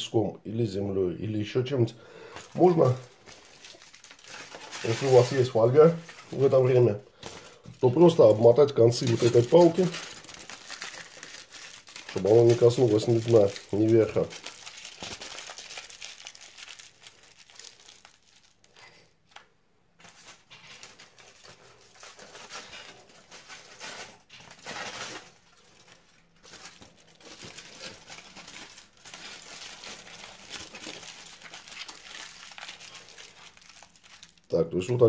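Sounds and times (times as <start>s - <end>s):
aluminium foil crinkling: 2.2s - 19.4s, 20.0s - 35.0s.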